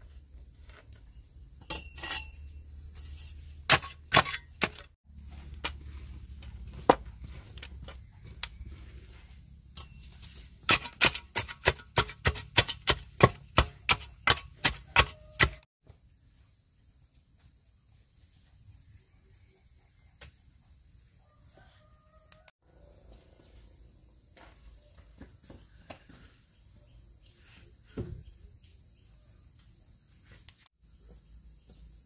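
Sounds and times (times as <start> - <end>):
blade chopping: 10.6 - 15.6.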